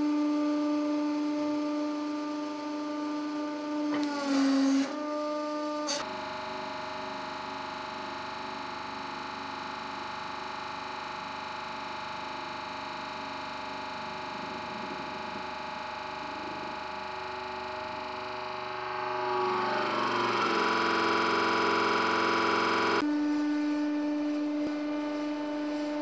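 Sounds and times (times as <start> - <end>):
hydraulic press humming: 5.9 - 23.0.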